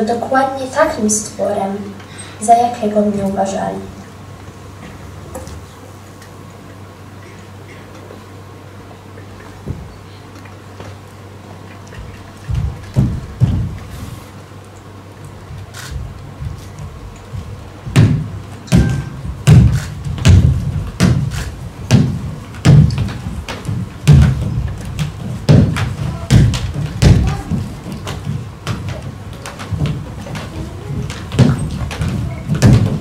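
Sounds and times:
heavy thuds: 0:12.0 - 0:14.2, 0:15.3 - 0:33.0
soft knocks: 0:16.3 - 0:33.0.

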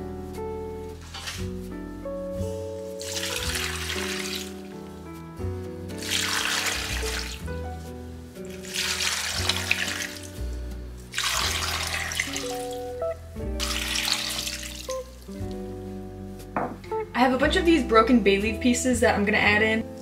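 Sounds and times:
background music: 0:00.0 - 0:20.0
water pouring into metal pot: 0:03.0 - 0:04.6, 0:06.0 - 0:07.4, 0:08.5 - 0:10.4, 0:11.1 - 0:12.9, 0:13.6 - 0:15.0.

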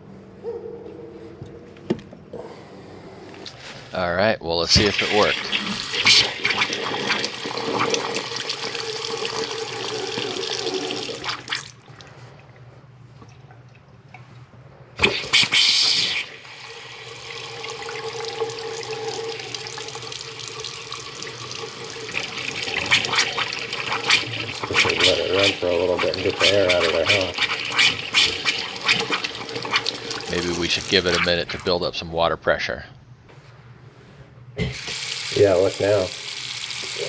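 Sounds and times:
faucet water running into sink: 0:04.8 - 0:11.7, 0:15.0 - 0:31.7, 0:34.7 - 0:37.0.

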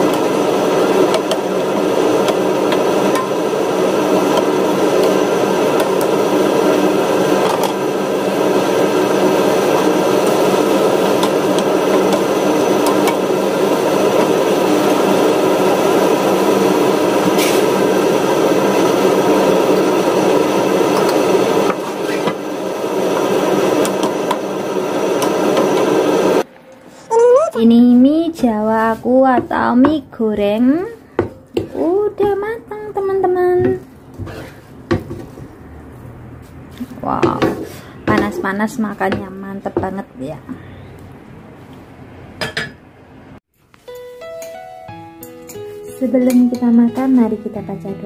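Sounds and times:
noodles frying in a wok: 0:00.0 - 0:26.5
spatula scraping a pan: 0:17.3 - 0:17.7, 0:34.2 - 0:34.8.

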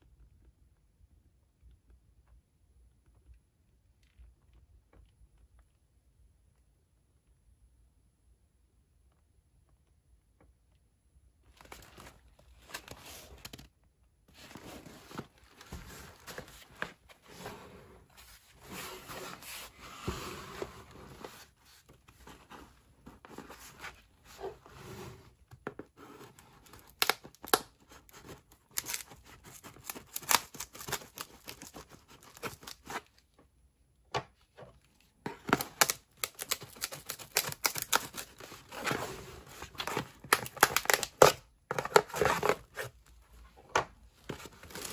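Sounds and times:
cardboard box handled: 0:14.3 - 0:33.0, 0:35.3 - 0:43.0
cardboard scraping and tearing: 0:35.3 - 0:42.9, 0:44.3 - 0:44.9.

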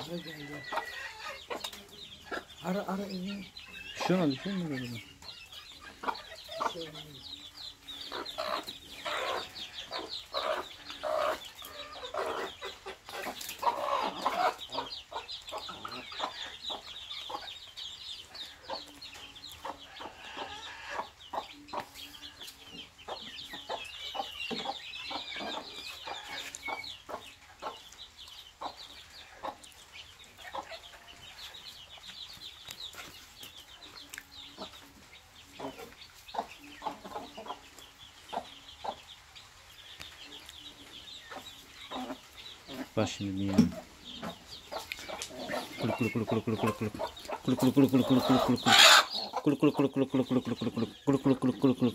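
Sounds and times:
chicks peeping: 0:00.0 - 0:51.9
hen clucking low: 0:43.5 - 0:51.9.

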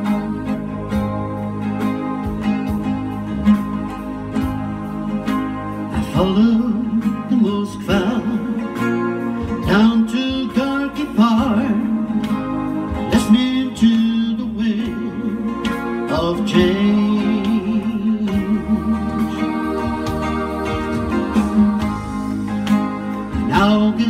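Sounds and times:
strummed acoustic guitar: 0:00.0 - 0:24.0
man singing ballad: 0:05.9 - 0:19.9, 0:23.2 - 0:24.0.

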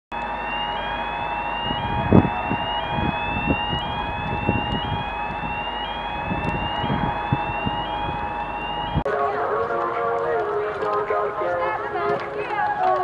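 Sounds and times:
rising electronic siren tone: 0:00.1 - 0:09.1
low rumbling noise: 0:00.1 - 0:13.0
steady hum: 0:00.1 - 0:13.0.

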